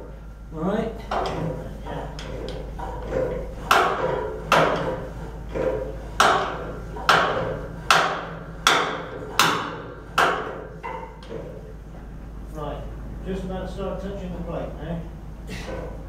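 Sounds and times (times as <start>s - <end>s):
hammer striking metal tube: 1.1s - 11.5s.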